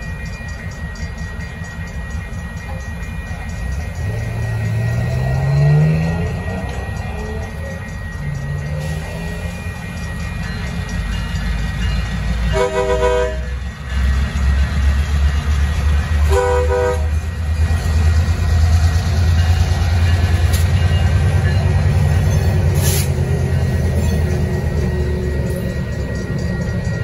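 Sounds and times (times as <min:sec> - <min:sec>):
diesel locomotive engines: 0:00.0 - 0:27.0
locomotive horn blasts: 0:12.5 - 0:13.6, 0:16.2 - 0:17.3.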